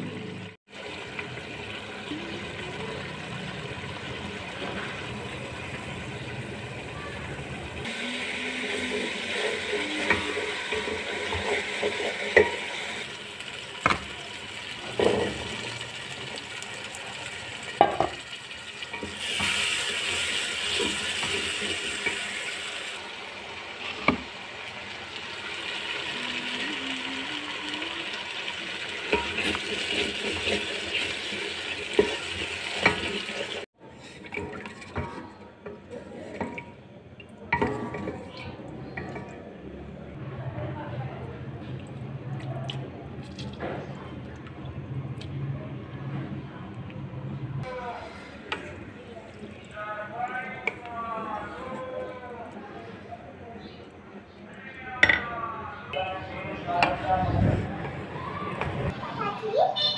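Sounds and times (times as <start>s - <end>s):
food sizzling in a pot: 0.2s - 33.7s
wooden spoon stirring in pot: 33.9s - 36.8s.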